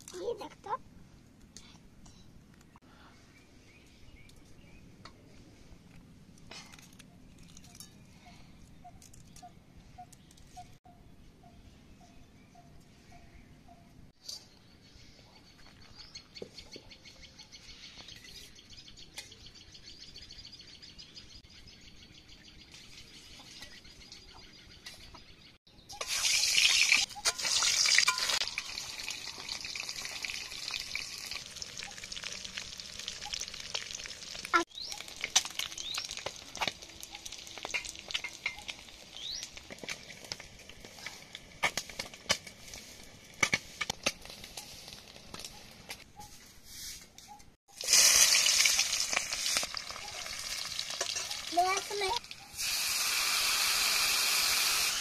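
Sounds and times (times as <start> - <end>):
eggs sizzling in hot oil: 26.0 - 45.3, 47.7 - 55.0
oil popping and spattering: 26.0 - 45.5, 47.7 - 55.0
birds chirping: 28.4 - 40.2.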